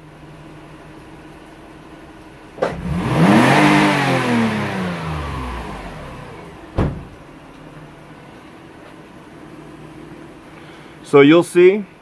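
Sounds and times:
thump: 2.6 - 2.8, 6.7 - 7.2
car engine revving: 2.6 - 7.3
sharp knock: 6.8 - 7.2.

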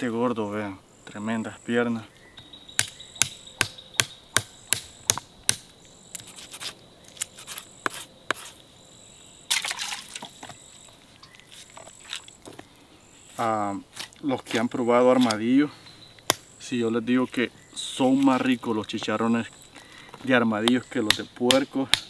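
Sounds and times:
insects trilling: 0.0 - 22.0
knife chopping on wooden stump: 2.8 - 6.7, 7.4 - 8.6, 20.6 - 22.0
knife rasping cut: 6.2 - 8.6.

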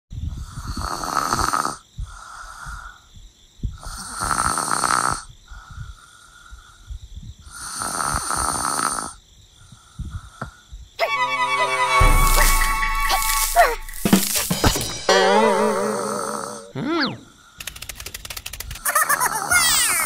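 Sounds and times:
person snoring: 3.8 - 5.3.

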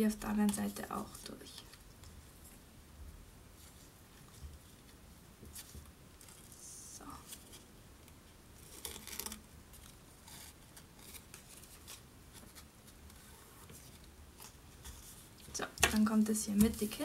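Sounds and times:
paper and ribbon rustling: 8.6 - 17.0.

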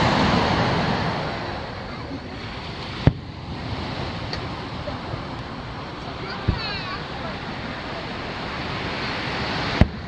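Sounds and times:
surf: 0.0 - 10.0
wind: 0.0 - 10.0
firework bang: 3.0 - 3.5, 9.7 - 10.0.

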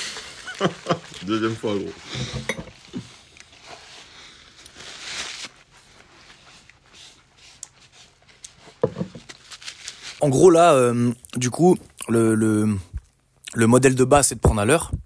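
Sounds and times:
people chewing food: 0.0 - 4.8
soft rustling: 0.0 - 10.6.

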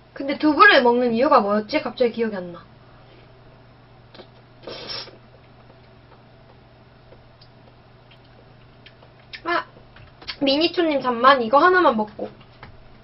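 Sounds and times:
steady low hum: 0.0 - 13.0
breathy mouth noise: 4.1 - 6.6.

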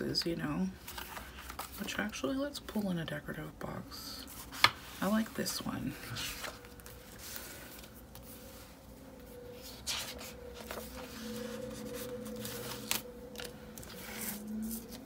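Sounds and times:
paper and plastic rustling: 0.2 - 2.3, 4.1 - 15.0
faint hum: 3.1 - 15.0.

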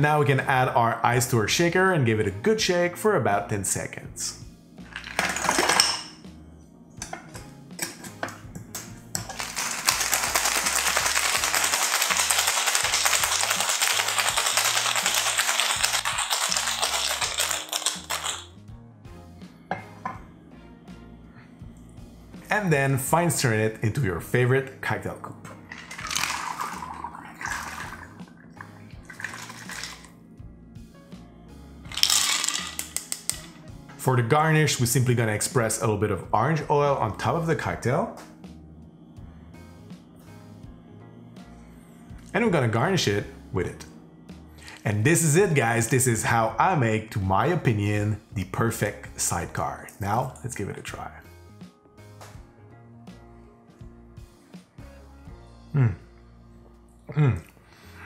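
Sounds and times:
background music with bass line: 0.0 - 58.0
ice cubes clattering into shaker: 4.9 - 6.0, 9.2 - 18.5, 25.7 - 28.0, 29.1 - 30.1, 31.9 - 33.5
ice rattling in shaker: 9.2 - 18.5, 25.7 - 28.2, 29.0 - 30.1, 31.9 - 33.5
liquid pouring into a glass: 9.9 - 18.4, 25.6 - 30.1, 31.9 - 32.9.

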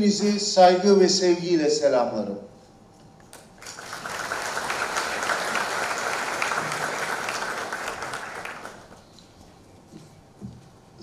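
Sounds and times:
audience applauding: 3.6 - 9.0.

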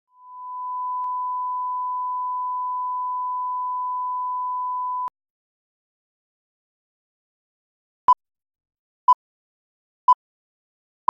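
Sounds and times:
steady test tone beep: 0.2 - 5.1.

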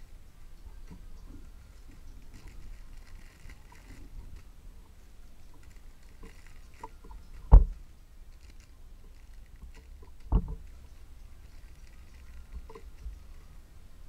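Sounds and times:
plastic bags crinkling: 1.7 - 4.5, 5.4 - 7.5, 8.3 - 10.8, 11.4 - 13.6.

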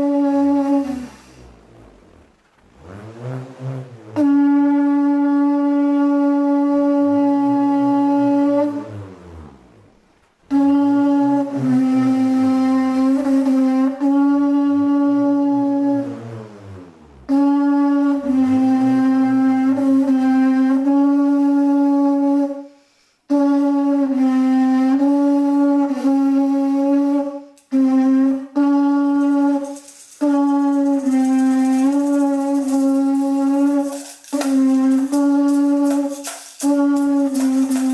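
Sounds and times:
conch shell trumpet blasts: 0.0 - 1.5, 3.0 - 9.5, 10.5 - 16.2, 17.3 - 37.9
bull roarer whirring: 0.1 - 6.1.

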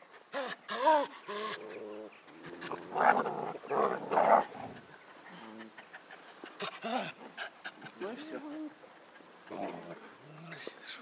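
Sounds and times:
puppies growling: 0.4 - 8.0.

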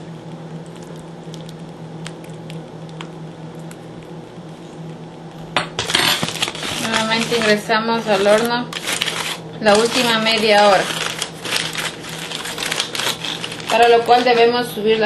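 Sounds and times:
steady low hum: 0.0 - 15.0
aluminium foil crinkling: 5.8 - 15.0.

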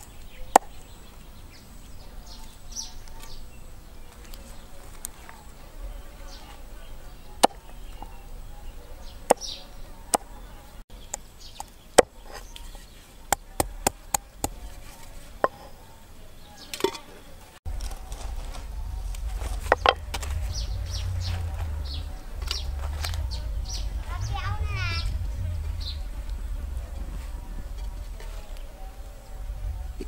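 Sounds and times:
low rumble: 17.7 - 30.0.

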